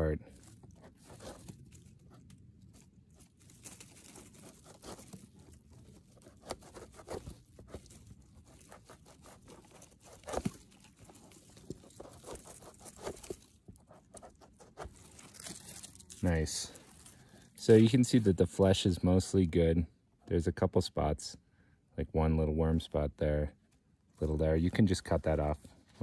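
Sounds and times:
knife scraping mushroom stem: 0.4 - 17.1.

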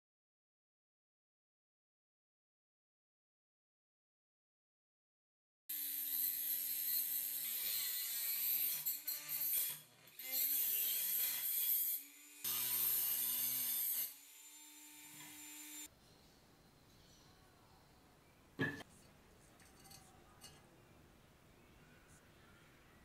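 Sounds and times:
rotary tool grinding metal: 5.7 - 15.9.

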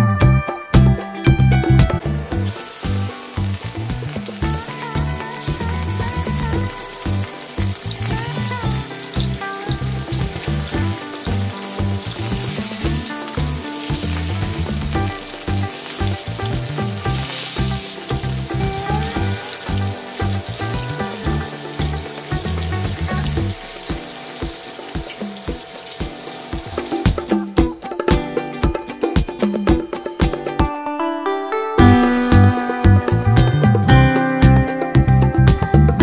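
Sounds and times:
background music: 0.0 - 36.0
fish sizzling in oil: 2.3 - 27.5.

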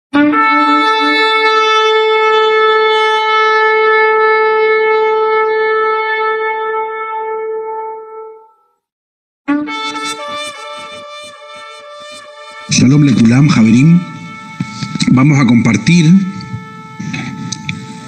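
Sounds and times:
shofar blast: 0.2 - 8.6, 9.5 - 18.0
rough low horn note: 9.5 - 18.0.

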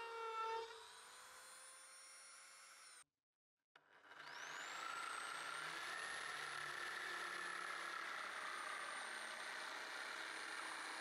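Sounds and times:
jigsaw cutting wood: 4.0 - 11.0.

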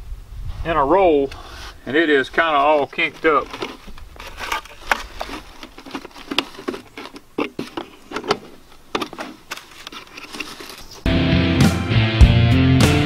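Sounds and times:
plastic pipe clicking and crinkling: 2.3 - 11.1.

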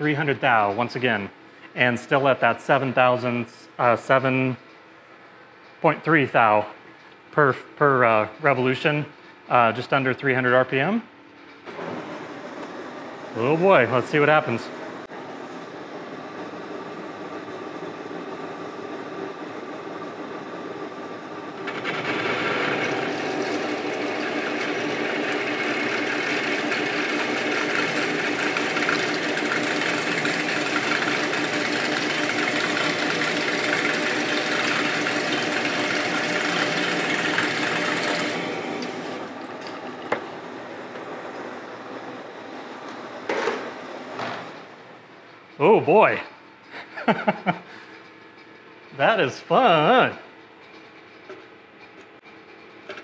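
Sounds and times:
lathe spindle running: 11.7 - 44.2
lathe cutting steel: 21.6 - 42.4.

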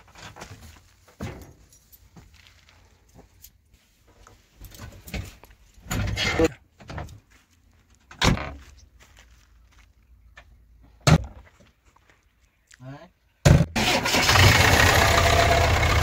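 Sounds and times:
rustles and clunks: 0.0 - 12.2.

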